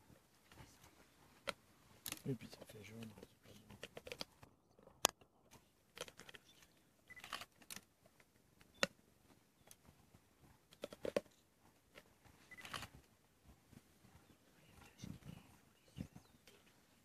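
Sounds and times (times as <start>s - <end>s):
lions chewing and cracking bone: 1.4s - 9.0s, 9.6s - 13.1s.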